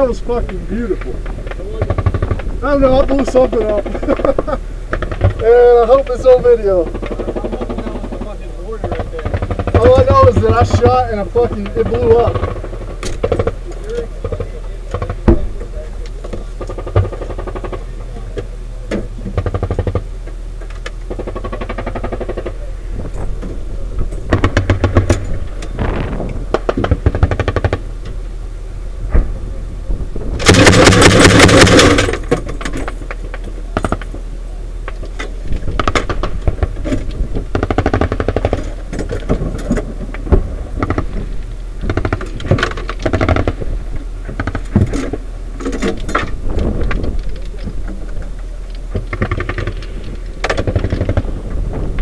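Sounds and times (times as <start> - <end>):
steady low hum: 0.0 - 52.0
automatic weapon fire: 21.1 - 22.7, 30.4 - 32.4, 37.5 - 38.8, 49.1 - 51.4
metallic rattling and clanking: 30.3 - 34.2.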